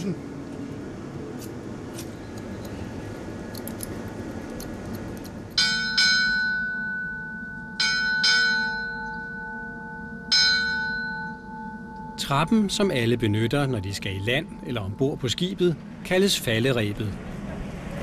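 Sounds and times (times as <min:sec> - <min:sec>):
ship's bell ringing: 0:05.6 - 0:16.7.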